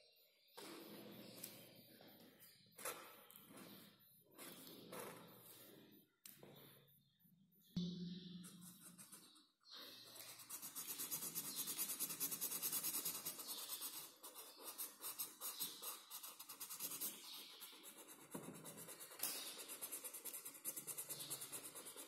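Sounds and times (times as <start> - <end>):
marker scribbling on paper: 10.2 - 22.0.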